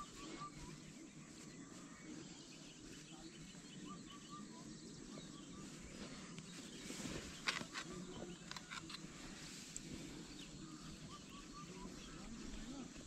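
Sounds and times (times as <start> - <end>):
faint chirping calls: 0.0 - 13.0.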